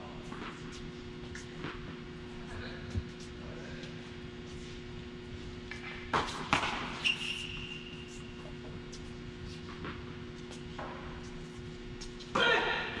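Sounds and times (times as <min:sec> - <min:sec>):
shoe squeak: 0:07.0 - 0:08.4.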